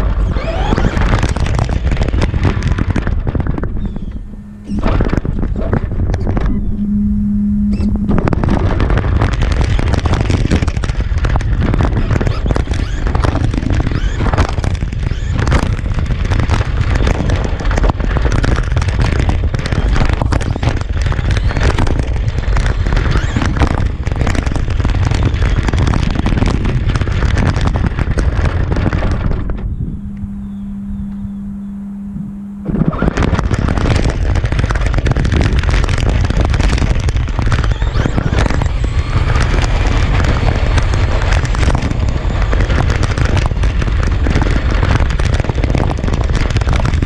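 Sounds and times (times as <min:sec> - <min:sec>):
steady low hum: 0:00.0 - 0:47.0
wind buffeting on microphone: 0:00.0 - 0:47.0
toy truck tyres crackling on asphalt: 0:09.0 - 0:29.5, 0:33.2 - 0:47.0.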